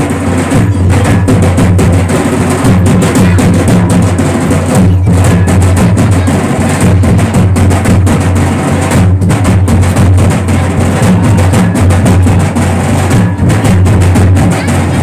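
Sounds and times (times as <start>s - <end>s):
hand-beaten procession drums: 0.0s - 15.0s.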